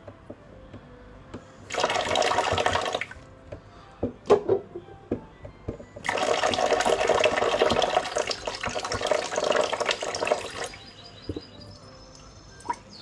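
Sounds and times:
tap water splashing into sink: 1.7s - 3.2s, 6.0s - 10.7s.

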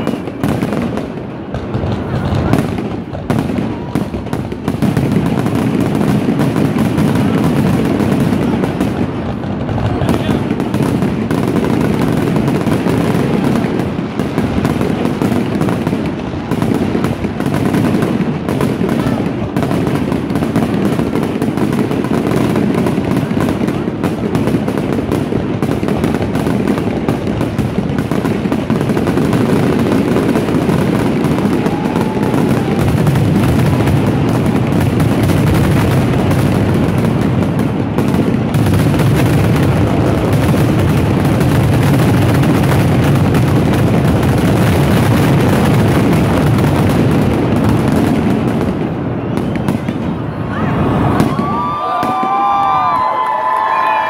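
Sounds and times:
fireworks bursting: 0.0s - 54.0s
crowd cheering and shouting: 31.3s - 33.2s, 50.3s - 54.0s.

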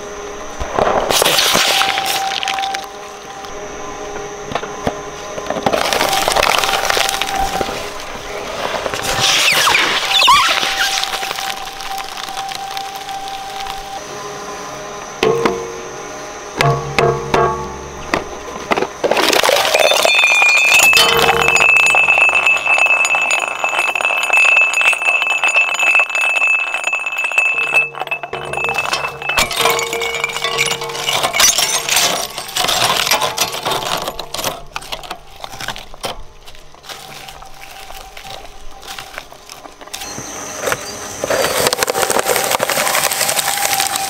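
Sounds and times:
ceramic cracking in shredder: 5.6s - 7.8s, 8.8s - 13.9s, 19.0s - 38.3s, 38.9s - 44.0s
shredder high whine: 39.9s - 44.0s.

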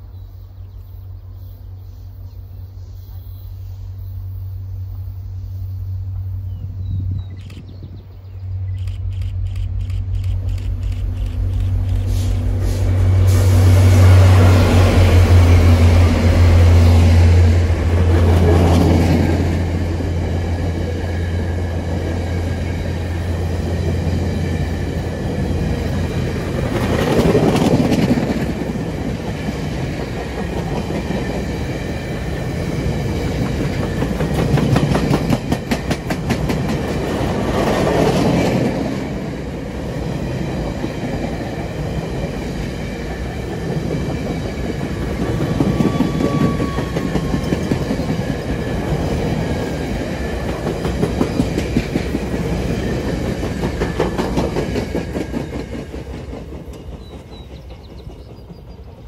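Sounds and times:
diesel locomotive engine drone: 0.0s - 59.0s
train wheels clicking over rail joints: 8.7s - 13.5s, 20.5s - 39.4s, 40.3s - 59.0s.

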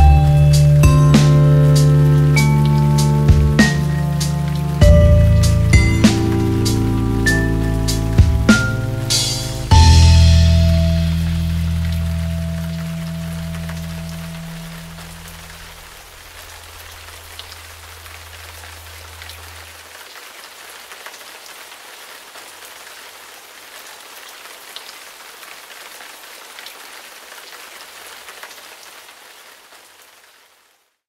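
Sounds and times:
low bass note: 0.0s - 15.9s
steady rain falling: 0.0s - 31.0s.

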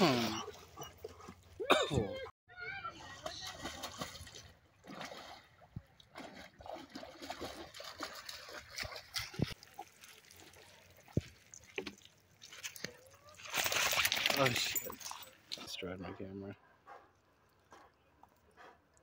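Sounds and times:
river water splashing: 3.0s - 15.7s.

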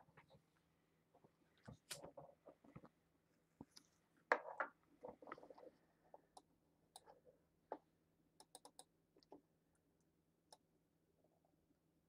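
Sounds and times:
computer mouse clicks: 8.4s - 8.9s.

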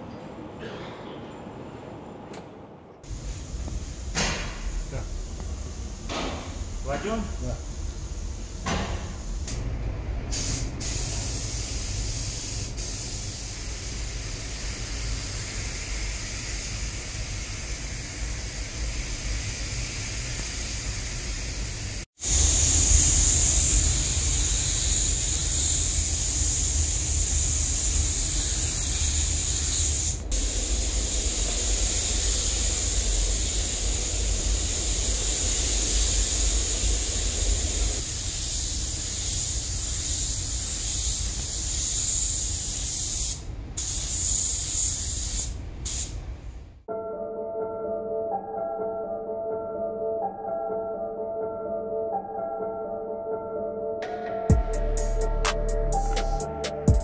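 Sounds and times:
ventilation rumble: 1.6s - 19.6s, 21.4s - 41.7s
paint spray gun hissing: 3.1s - 9.6s, 10.3s - 46.2s.

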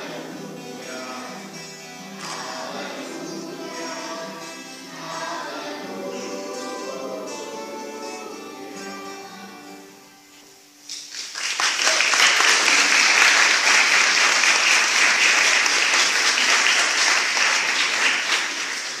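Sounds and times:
acoustic guitar notes: 0.0s - 10.9s
audience applause: 11.0s - 19.0s.

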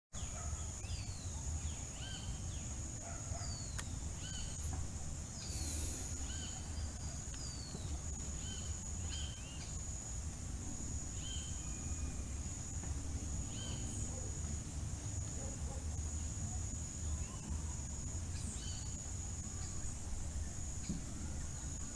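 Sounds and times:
birds singing whistled notes: 0.2s - 10.0s, 11.1s - 12.6s, 13.4s - 14.4s, 17.0s - 21.9s.

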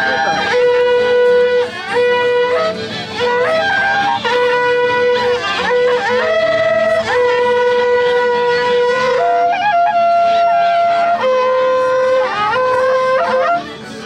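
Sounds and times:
horn trumpets held notes: 0.0s - 14.0s.

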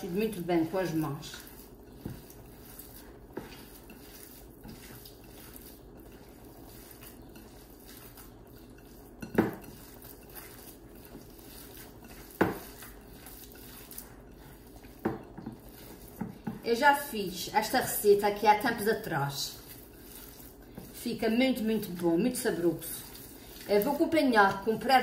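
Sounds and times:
hands kneading minced meat: 0.0s - 25.0s.

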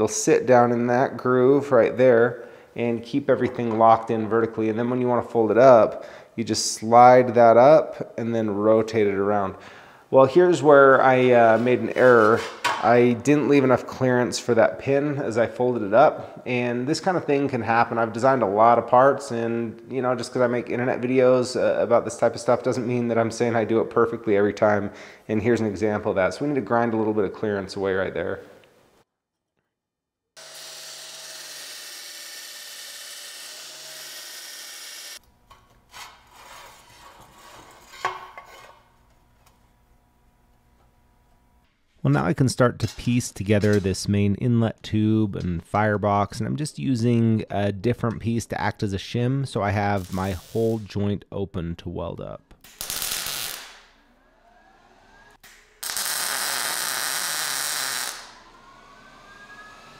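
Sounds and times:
belt grinder grinding steel: 30.4s - 35.2s
welding arc hissing: 30.4s - 35.2s, 50.0s - 50.9s, 52.6s - 53.9s, 55.5s - 58.4s.

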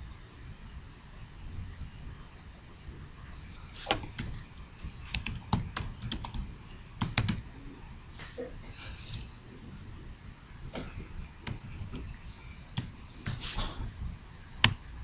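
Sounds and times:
computer keyboard typing: 3.7s - 7.5s, 11.4s - 13.6s, 14.6s - 15.0s.

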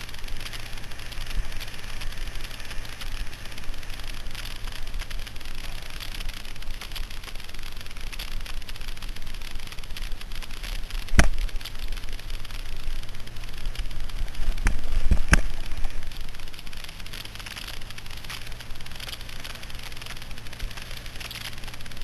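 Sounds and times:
gravel rattling under tyres: 0.0s - 22.0s
scooter engine hum: 0.0s - 22.0s
wind noise on microphone: 6.3s - 22.0s.

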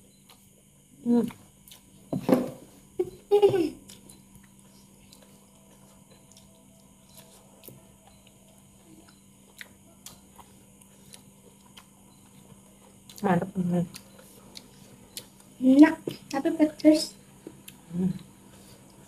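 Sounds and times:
chewing with wet mouth clicks: 3.8s - 16.4s.

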